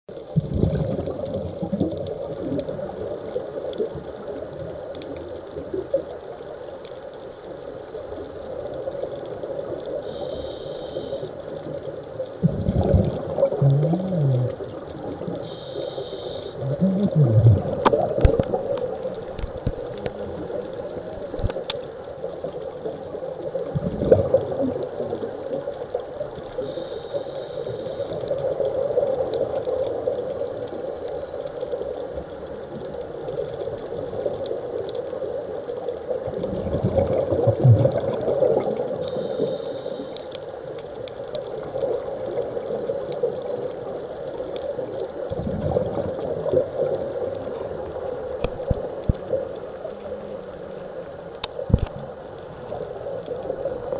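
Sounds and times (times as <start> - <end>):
underwater water noise: 0.1 - 53.9.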